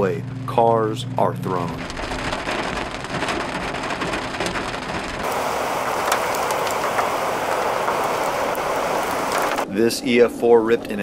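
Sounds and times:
rain falling on vehicle: 1.7 - 9.7
tornado wind rushing: 1.7 - 10.2
sharp cracks: 1.8 - 9.7.

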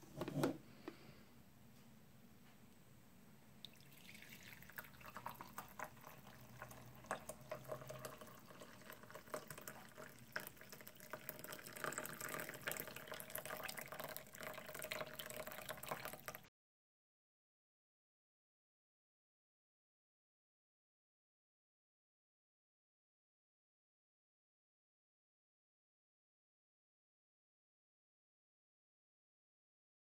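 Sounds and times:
coffee liquid clicks and drips: 3.6 - 16.5.

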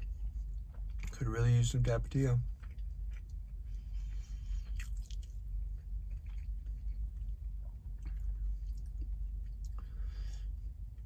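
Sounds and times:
man chewing food: 0.0 - 1.2, 2.4 - 11.0
low hum inside car cabin: 0.0 - 11.0
wet mouth smacks and clicks: 4.8 - 5.4.

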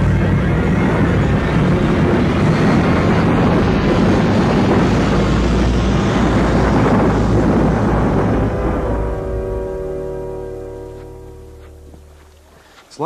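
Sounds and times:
loud rushing noise: 0.0 - 12.3
low rumble: 0.0 - 12.6.

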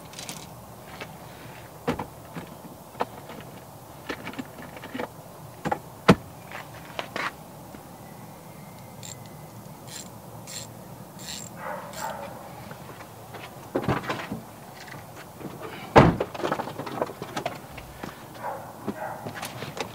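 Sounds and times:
light scraping and rustling: 6.4 - 7.4, 11.4 - 19.9
metal hand tools clinking: 9.9 - 12.2.

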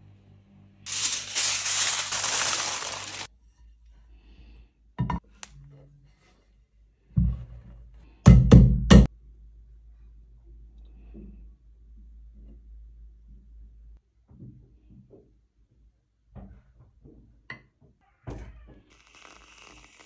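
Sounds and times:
loud steady hiss: 0.9 - 3.3.

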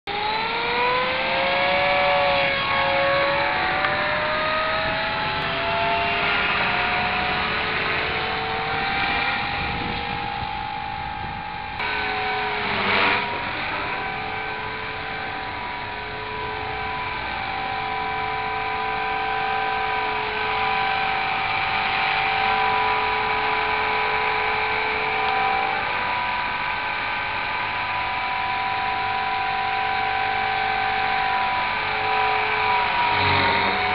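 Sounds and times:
rc helicopter motor and rotor whine: 0.1 - 33.9.

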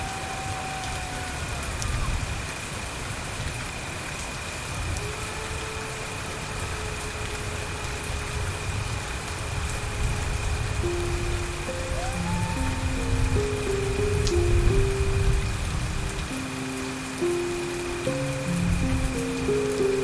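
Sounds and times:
steady rain falling: 0.0 - 20.0
faint long held tones: 10.5 - 20.0.

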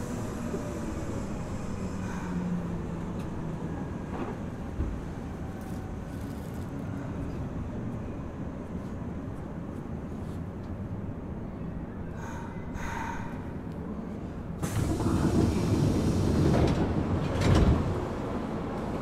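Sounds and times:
train wheels rumbling on rail: 0.0 - 8.0, 12.2 - 19.0
faint train whine: 0.0 - 19.0.

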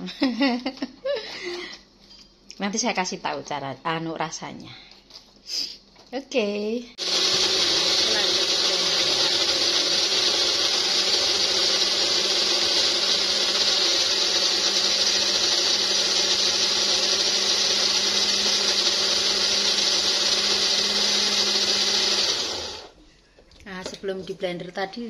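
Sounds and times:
blender motor whining: 7.0 - 23.0.

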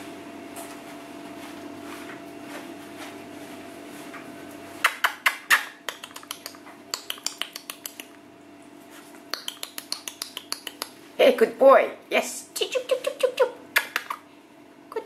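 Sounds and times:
puppy claws clicking on tiles: 4.9 - 8.2, 9.3 - 11.0.

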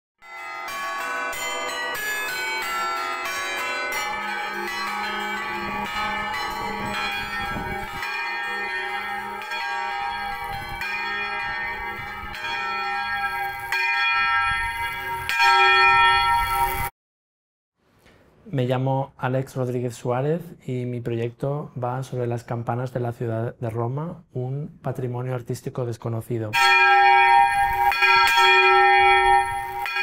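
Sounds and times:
church bells pealing: 0.2 - 16.9, 26.6 - 30.0.

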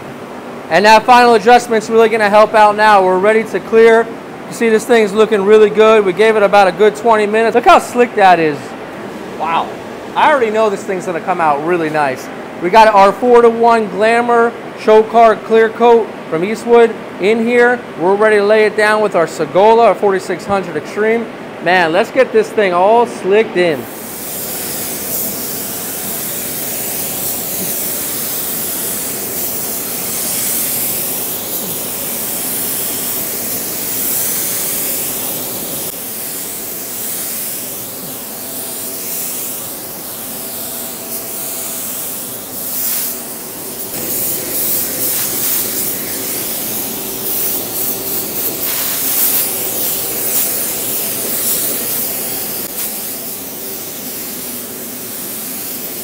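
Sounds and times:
blower hum: 0.0 - 56.0
spray gun air hiss: 23.8 - 56.0.

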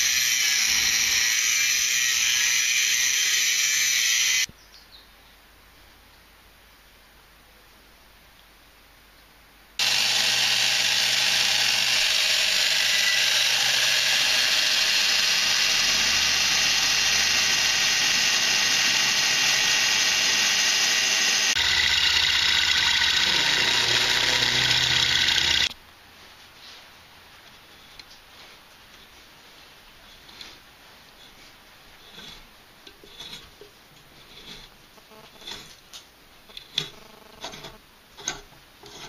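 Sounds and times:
drill press drilling metal: 0.0 - 4.5, 9.8 - 25.7.

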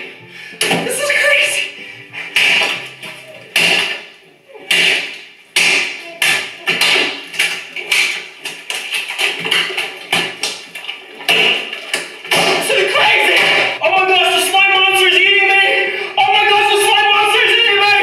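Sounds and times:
slime slapping and splashing: 4.7 - 13.8.

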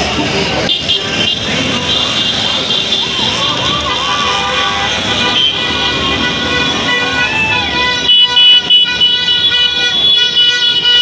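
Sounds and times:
motorcycle engines running: 0.0 - 9.6
vehicle horns honking: 0.6 - 11.0.

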